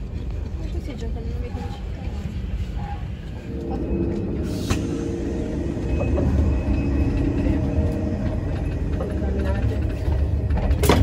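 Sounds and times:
train rumbling: 0.0s - 11.0s.

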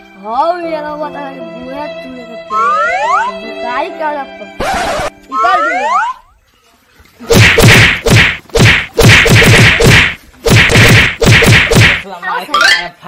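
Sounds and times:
hard punch sound effects: 7.3s - 12.1s.

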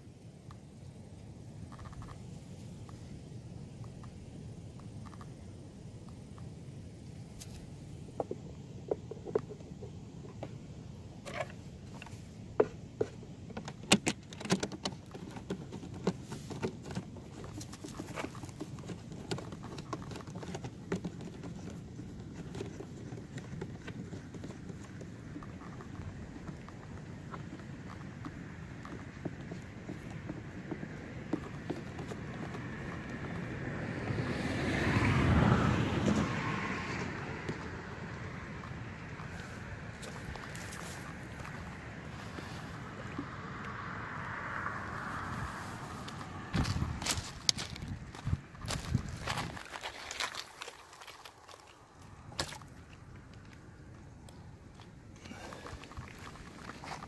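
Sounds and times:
wind rumble on microphone: 16.6s - 50.1s
vehicle passing by: 32.2s - 49.7s.

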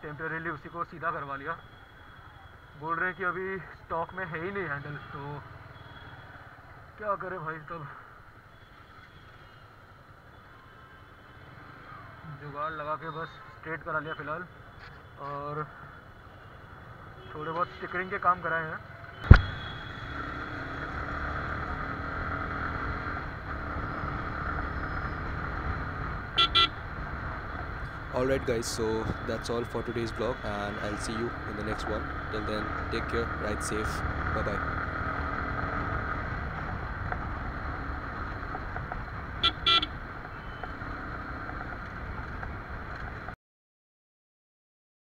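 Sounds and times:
road and wind noise: 0.0s - 43.4s
horn beeps: 19.2s - 21.0s, 26.4s - 26.8s, 39.4s - 40.6s
motorcycle engine cruising: 19.3s - 43.3s.

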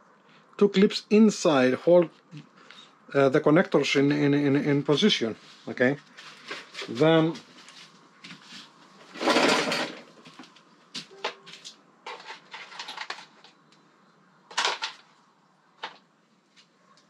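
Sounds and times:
plastic parts scraping: 9.0s - 10.2s, 11.6s - 13.6s, 14.5s - 15.1s.

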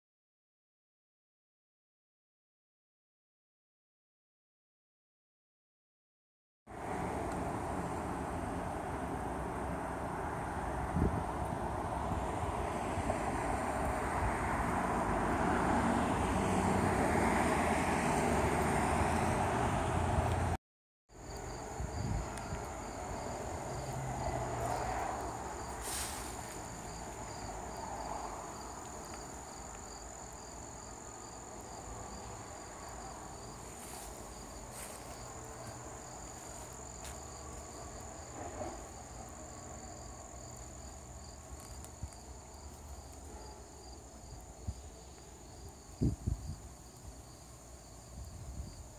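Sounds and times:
road traffic: 6.7s - 48.9s
wind buffeting microphone: 10.8s - 13.1s, 21.7s - 22.7s, 45.9s - 46.7s, 48.1s - 48.9s
insects trilling: 21.1s - 48.9s.

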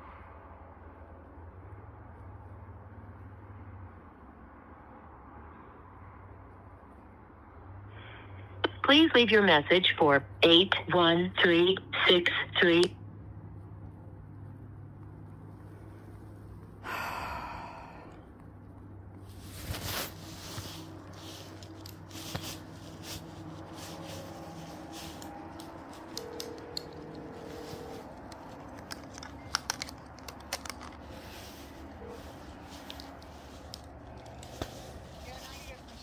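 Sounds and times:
breath-like rush: 16.8s - 18.3s.

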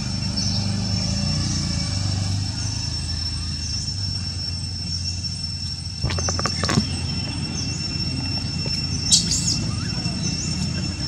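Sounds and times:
high-pitched whine: 0.0s - 11.0s
bird chirps: 2.5s - 11.0s
rustling clicks: 6.0s - 7.0s.

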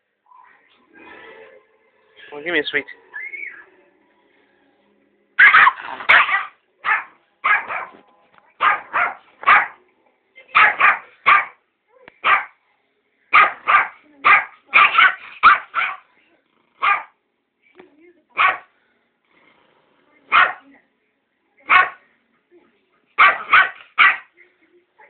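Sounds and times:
small dog barking aggressively: 5.4s - 8.0s, 8.6s - 9.8s, 10.5s - 11.6s, 12.2s - 12.6s, 13.3s - 16.0s, 16.8s - 17.2s, 18.4s - 18.7s, 20.3s - 20.6s, 21.7s - 22.0s, 23.2s - 24.3s.

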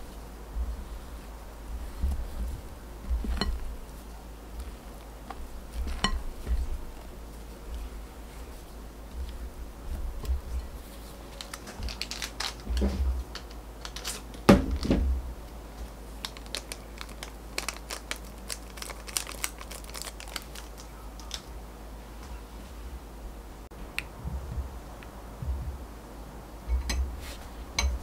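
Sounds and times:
plastic packets crinkling: 10.6s - 15.0s, 15.8s - 21.5s.

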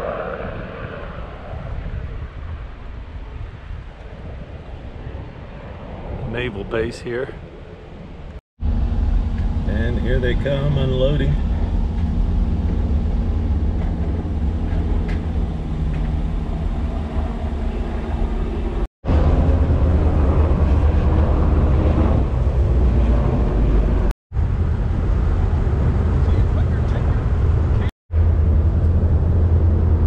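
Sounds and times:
vehicle engine rumble: 0.0s - 30.0s
faint idling engine hum: 6.3s - 30.0s.

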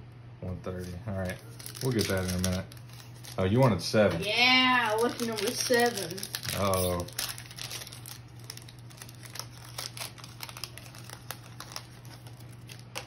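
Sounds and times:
foil pack crinkling: 0.7s - 13.0s.

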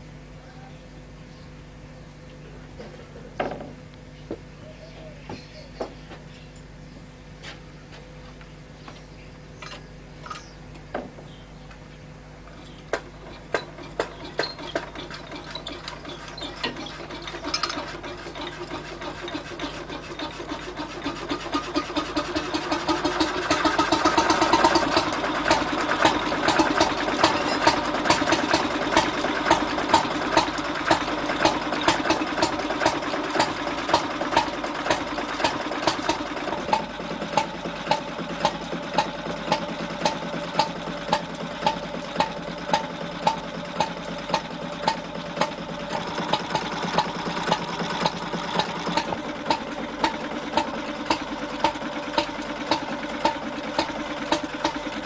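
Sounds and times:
stationary engine running: 12.9s - 55.0s.

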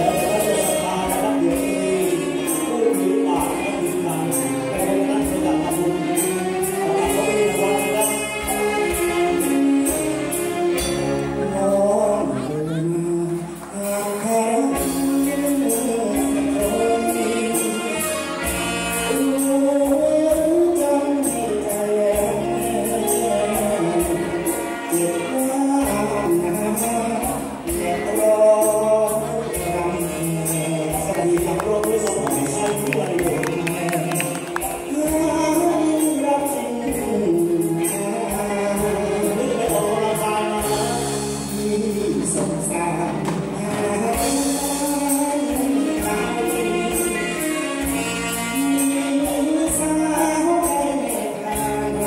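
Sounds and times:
live band music: 0.0s - 52.0s
drum kit: 13.0s - 52.0s.

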